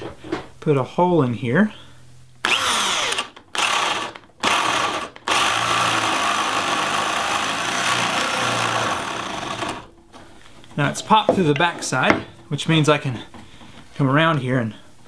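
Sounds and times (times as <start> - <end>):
power drill boring into wood: 2.4 - 9.9.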